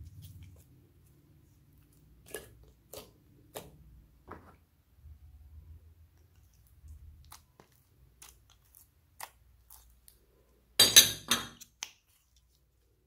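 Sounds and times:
slime squelching and popping: 6.0s - 10.4s.

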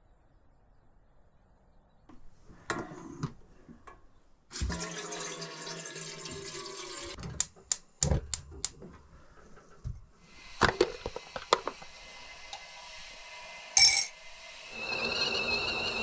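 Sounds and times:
water running into metal kettle: 4.5s - 7.2s.

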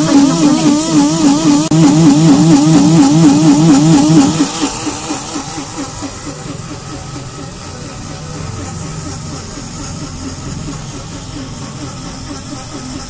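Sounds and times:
blender motor whining: 0.0s - 7.6s.

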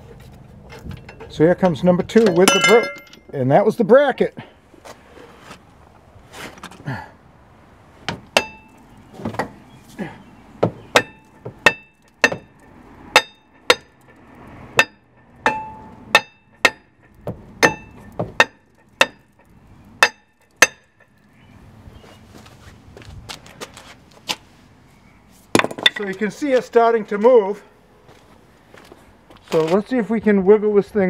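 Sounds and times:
hammer striking metal rotor: 11.0s - 14.2s, 14.8s - 21.0s.

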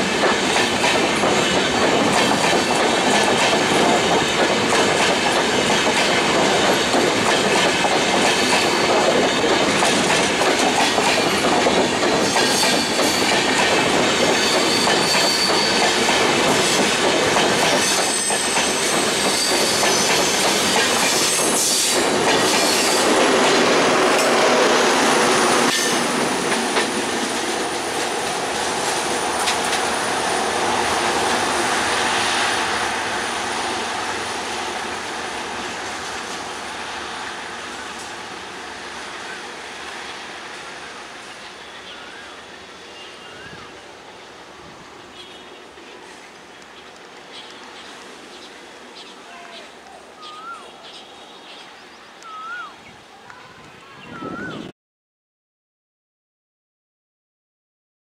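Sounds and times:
train wheels clattering: 0.0s - 32.0s
high wheel squeal: 14.4s - 16.0s, 17.8s - 20.4s.

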